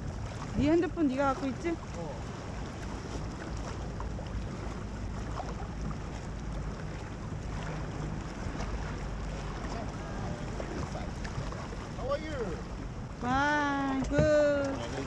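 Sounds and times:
boat motor running: 0.0s - 15.0s
wind noise on microphone: 12.9s - 15.0s.

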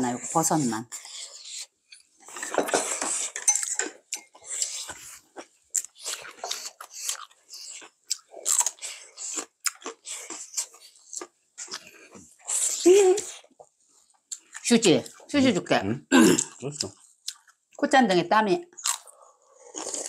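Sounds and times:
wet chewing and slurping: 0.1s - 15.3s, 16.3s - 17.8s, 18.8s - 20.0s
chopsticks clinking on dishes: 2.3s - 4.3s.

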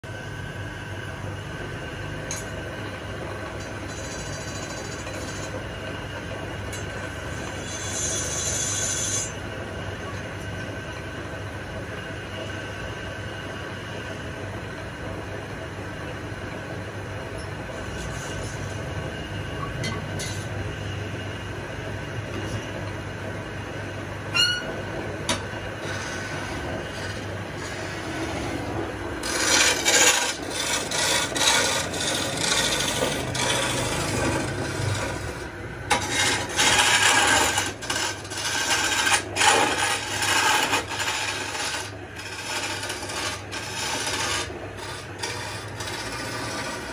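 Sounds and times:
chisel scraping spinning wood: 3.4s - 9.5s, 17.4s - 20.5s, 25.3s - 46.9s
wood lathe whining: 3.5s - 5.7s, 6.8s - 9.5s, 25.8s - 46.9s
short sharp squeal: 24.3s - 24.8s.

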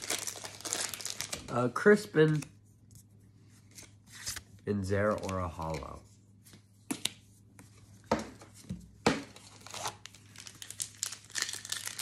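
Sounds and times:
foil wrapper crinkling and tearing: 0.0s - 1.6s, 9.4s - 12.0s
trading cards being handled: 2.2s - 8.5s.

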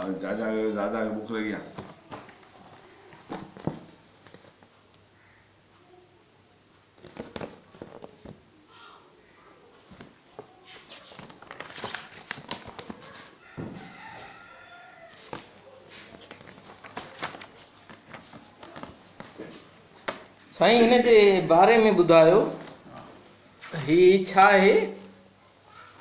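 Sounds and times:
paper pages rustling and turning: 1.7s - 4.8s, 7.0s - 8.4s, 9.8s - 13.4s, 15.0s - 20.4s
rooster crowing: 13.4s - 15.6s.

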